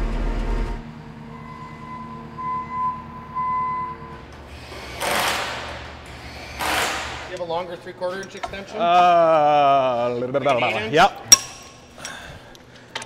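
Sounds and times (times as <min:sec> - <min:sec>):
loader engine whining: 0:00.0 - 0:06.8
impact wrench burst: 0:04.5 - 0:07.3.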